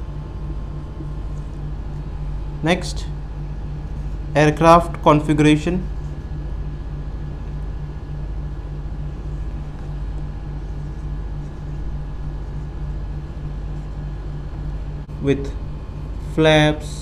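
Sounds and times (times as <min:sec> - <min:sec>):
low machine hum with throb: 0:00.0 - 0:17.0.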